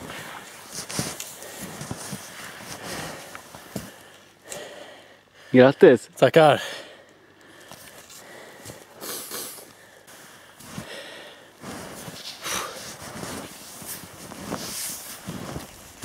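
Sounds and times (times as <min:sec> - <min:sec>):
footsteps crunching in snow: 0:00.0 - 0:04.0, 0:10.1 - 0:16.0
heavy breathing: 0:00.0 - 0:05.7, 0:06.6 - 0:13.5.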